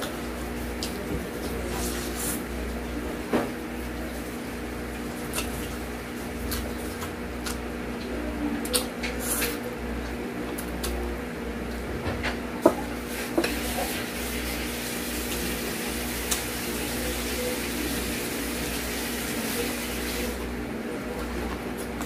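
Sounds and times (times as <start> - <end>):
steady background hum: 0.0 - 22.0
chewing crispy fried chicken: 4.0 - 11.1.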